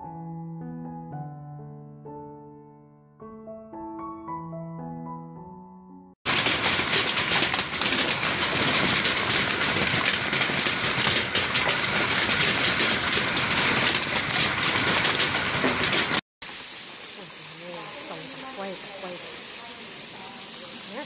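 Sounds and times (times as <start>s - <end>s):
hail clattering on ground: 6.2s - 16.2s, 17.1s - 21.0s.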